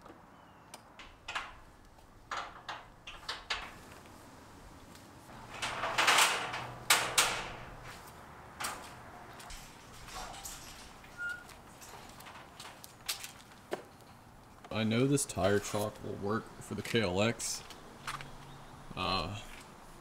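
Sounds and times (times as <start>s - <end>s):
scraping rattle: 1.0s - 4.0s, 5.3s - 13.4s.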